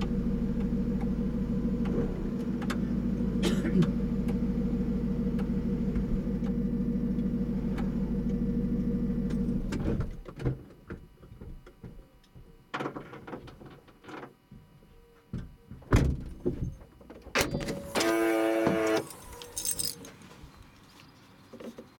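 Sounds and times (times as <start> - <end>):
electric pump motor humming: 0.0 - 9.8, 17.7 - 19.8.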